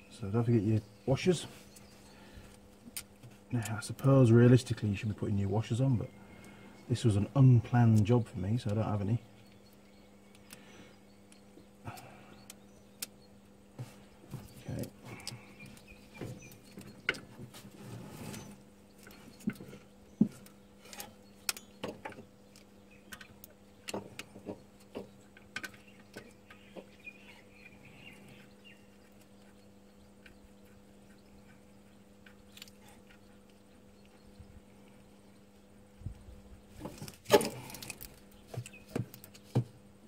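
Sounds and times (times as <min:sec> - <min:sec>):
faint steady hum: 0:00.0 - 0:40.0.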